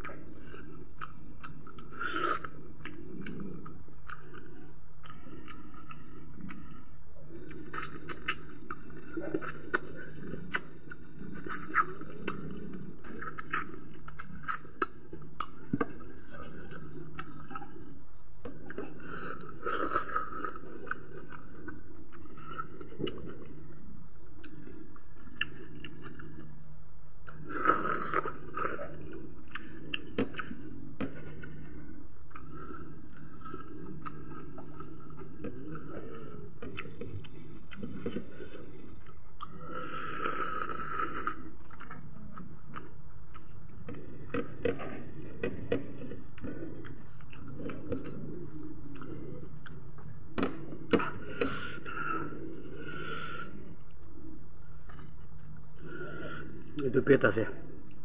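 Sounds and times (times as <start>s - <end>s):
wet chewing and lip smacking: 0.0s - 6.8s, 7.4s - 23.6s, 24.4s - 26.6s, 27.2s - 54.2s.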